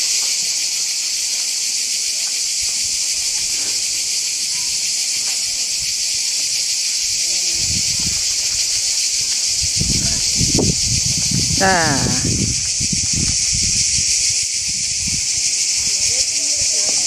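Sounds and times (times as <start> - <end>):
cicadas droning: 0.0 - 17.0
faint voices: 11.5 - 12.5.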